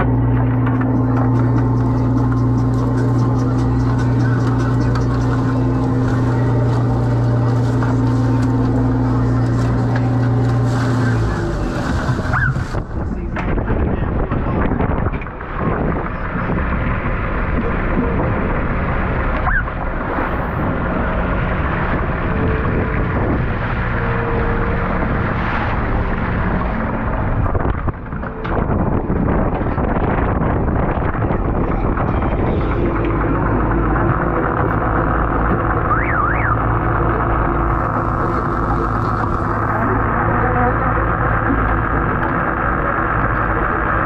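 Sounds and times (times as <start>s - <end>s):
boat engine and machinery drone: 0.0s - 44.0s
water splashing along hull: 0.0s - 44.0s.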